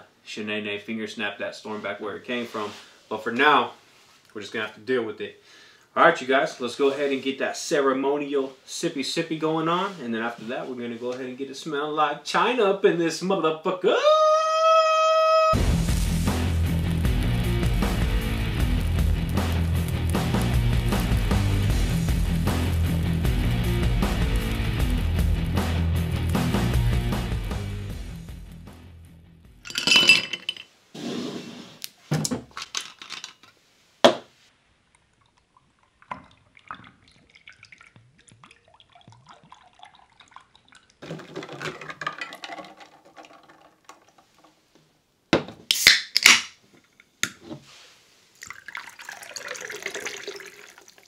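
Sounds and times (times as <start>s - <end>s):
glass clinks and knocks: 29.7s - 30.7s, 41.0s - 44.4s
liquid pouring into a glass: 35.1s - 44.1s, 48.4s - 51.0s.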